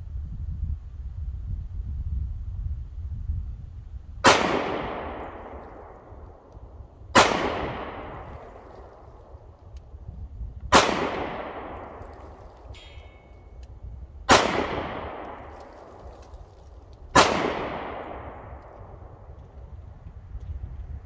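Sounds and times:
pistol shots echoing: 4.2 - 6.5, 7.1 - 9.0, 10.7 - 13.4, 14.3 - 16.3, 17.1 - 19.1.

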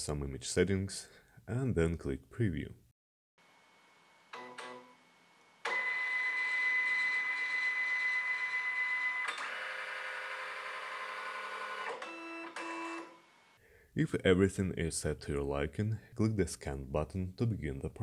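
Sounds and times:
scanner mechanism whining: 5.6 - 13.2.

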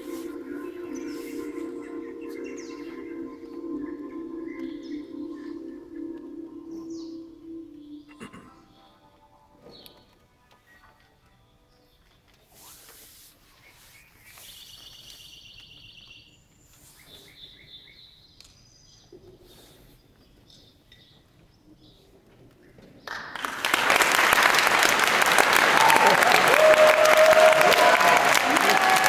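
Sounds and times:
electronic chirps from smartphones: 0.0 - 9.0
audience applause: 23.1 - 29.0.

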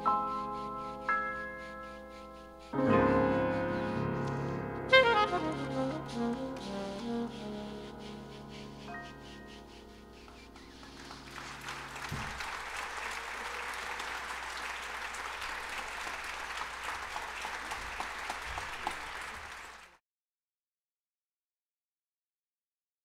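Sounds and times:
saxophone and piano: 0.0 - 17.0
audience applause: 10.5 - 20.0.

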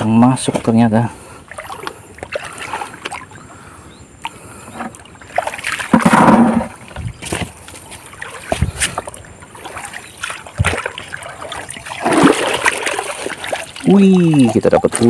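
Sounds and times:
water splashing and sloshing: 0.0 - 15.0
knocks: 5.9 - 6.7.

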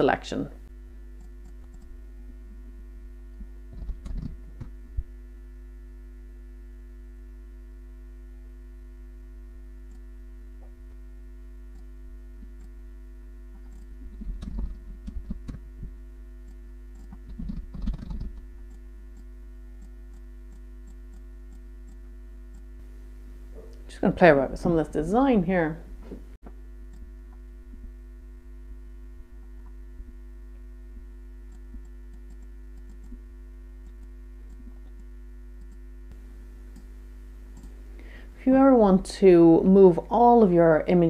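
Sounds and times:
electrical hum: 0.0 - 41.0
computer mouse clicks: 1.2 - 1.9, 3.7 - 4.7, 13.6 - 15.6, 16.5 - 22.7, 31.5 - 33.2, 33.8 - 35.8, 37.6 - 37.8
keyboard tapping: 3.8 - 4.7.

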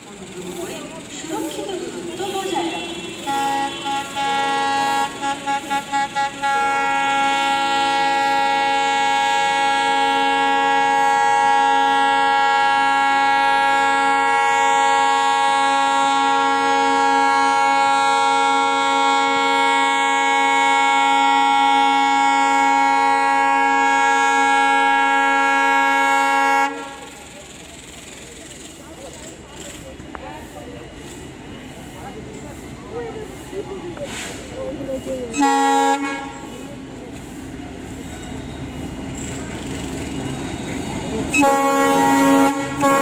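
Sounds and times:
locomotive air horn blasts: 2.1 - 27.3, 35.3 - 36.8, 41.0 - 43.0.

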